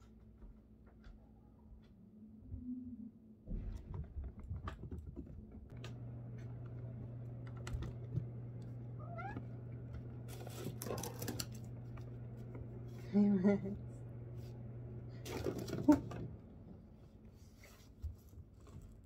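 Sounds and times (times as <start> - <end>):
cat chirp: 9.0 - 9.4
cat meowing: 9.0 - 9.4.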